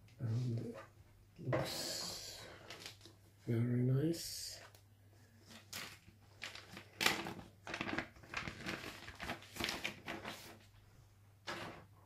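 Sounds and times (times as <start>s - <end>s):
plastic bag crinkling: 5.5s - 10.6s.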